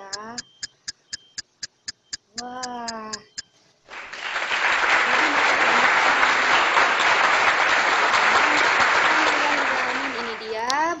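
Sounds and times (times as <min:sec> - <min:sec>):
crowd applauding: 0:03.9 - 0:11.0.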